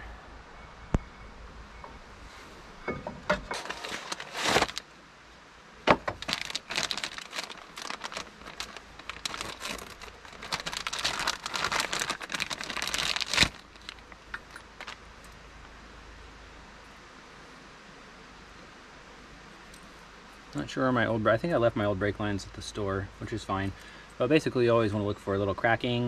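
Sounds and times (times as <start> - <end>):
plastic bag crinkling: 3.4 - 4.9, 5.9 - 15.1.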